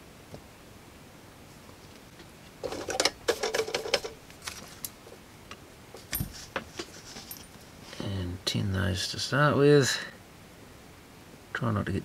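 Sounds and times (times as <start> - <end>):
tools rattling and clicking: 2.6 - 4.2.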